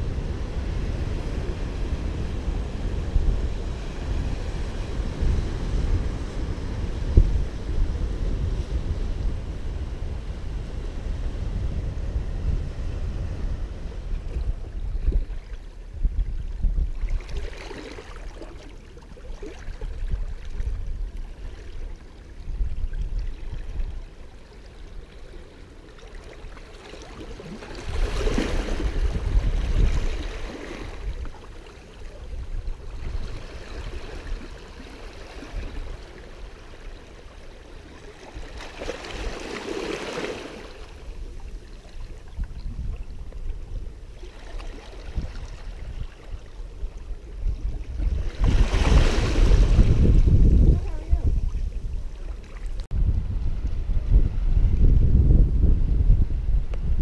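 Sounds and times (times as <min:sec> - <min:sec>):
wind rumble on microphone: 0:00.0 - 0:57.0
small waves washing over rocks: 0:17.0 - 0:20.6, 0:25.7 - 0:32.0, 0:32.9 - 0:43.1, 0:47.9 - 0:52.9.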